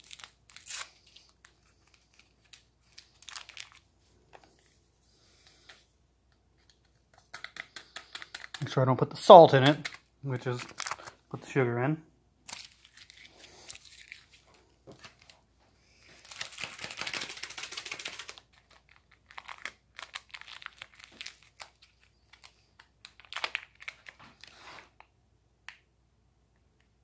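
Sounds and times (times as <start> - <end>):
packets crinkling and tearing: 0.0 - 4.6, 9.5 - 11.3, 12.4 - 15.4, 16.1 - 25.0.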